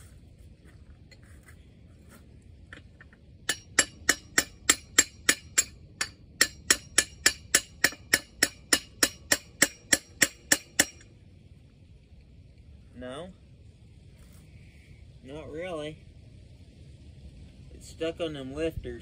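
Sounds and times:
hammer striking steel: 3.5s - 11.1s.

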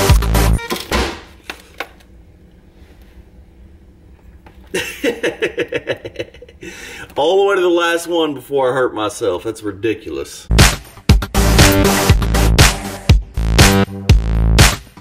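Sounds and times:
electronic background music: 0.0s - 1.0s, 10.5s - 15.0s
man laughing: 4.7s - 7.0s.

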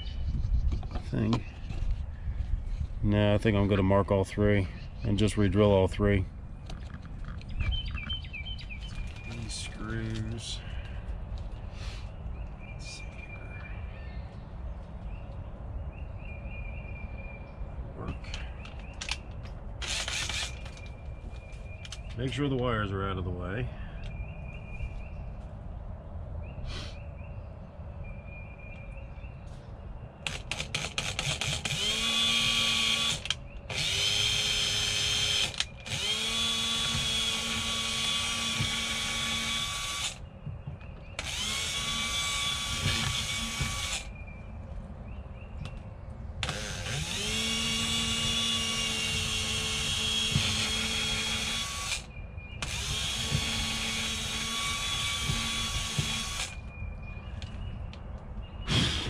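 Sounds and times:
drill clutch clicks: 18.6s - 20.9s, 30.2s - 40.2s, 41.2s - 44.1s, 46.4s - 56.6s
cordless drill whining: 19.8s - 20.8s, 30.3s - 40.2s, 41.2s - 44.1s, 46.4s - 56.6s.

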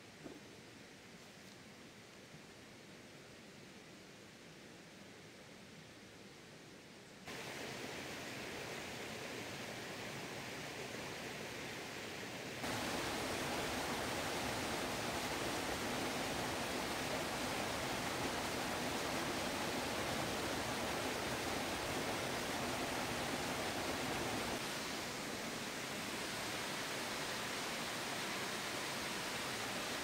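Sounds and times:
waterfall and stream rushing: 7.3s - 30.0s.

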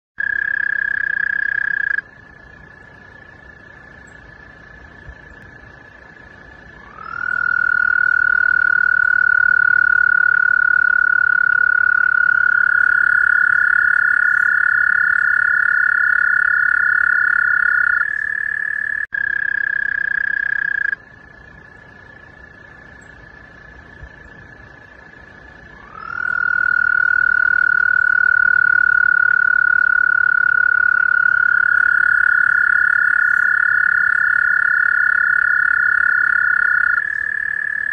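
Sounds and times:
toads trilling: 0.2s - 2.0s, 6.8s - 21.0s, 25.7s - 37.9s.

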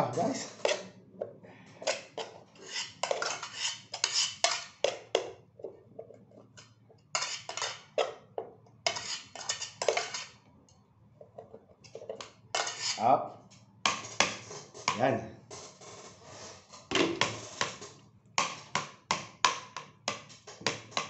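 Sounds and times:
metal pot clanking and scraping: 0.0s - 1.0s, 1.7s - 10.4s, 11.3s - 13.0s, 13.9s - 18.7s.

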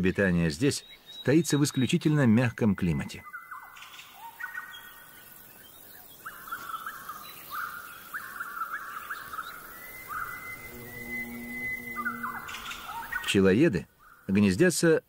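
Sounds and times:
birds rolling calls: 0.0s - 14.4s.

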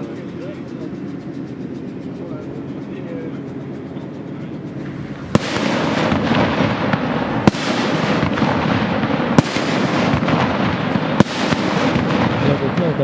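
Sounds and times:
firework crackle: 4.8s - 13.0s
firework shell bangs: 4.8s - 13.0s.

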